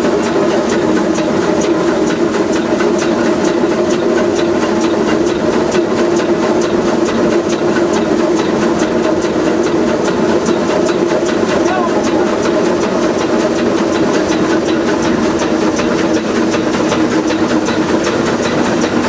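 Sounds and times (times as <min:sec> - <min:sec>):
steam locomotive roar: 0:00.0 - 0:19.0
rapid sharp ticks: 0:00.2 - 0:19.0.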